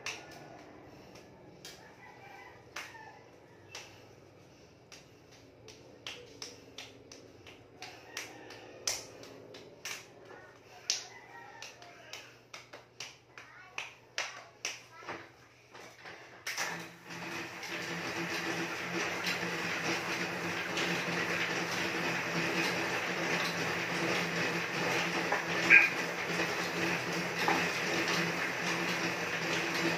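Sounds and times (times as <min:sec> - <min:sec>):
cross trainer whirring: 0:16.5 - 0:29.9.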